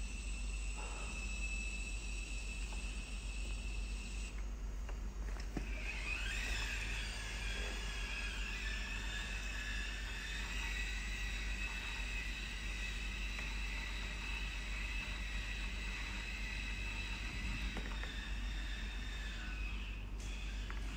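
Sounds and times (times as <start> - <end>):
electric motors whining: 0.0 - 20.9.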